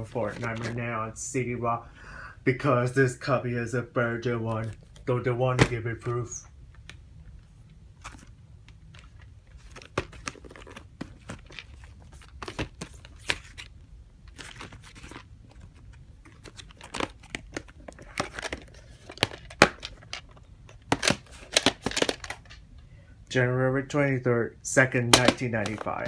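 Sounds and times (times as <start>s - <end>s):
plastic video case handled: 0.0s - 0.8s, 8.0s - 13.7s, 14.3s - 22.6s, 25.1s - 26.0s.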